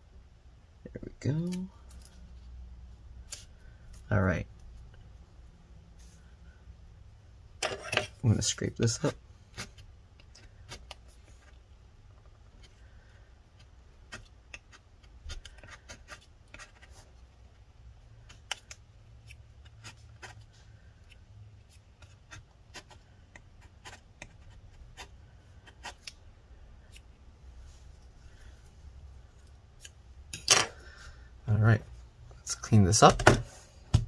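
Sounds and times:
metal spatula scraping: 7.6 - 8.2.

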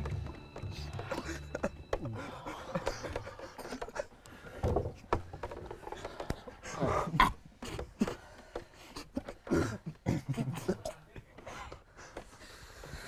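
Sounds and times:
men stifling laughter: 0.8 - 4.6, 8.9 - 11.3.

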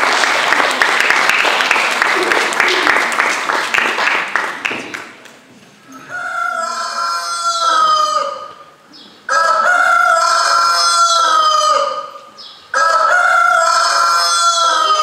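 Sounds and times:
rooster crowing: 6.0 - 8.5, 9.3 - 12.1, 12.8 - 15.0.

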